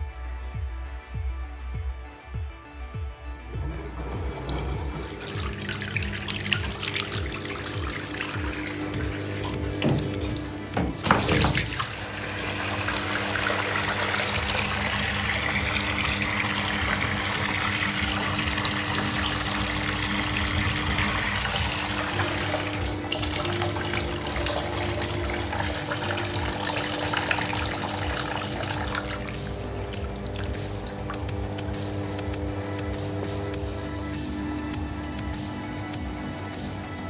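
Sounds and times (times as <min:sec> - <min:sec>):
water swirling into a sink: 0:03.7 - 0:31.3
steady low hum: 0:11.6 - 0:37.0.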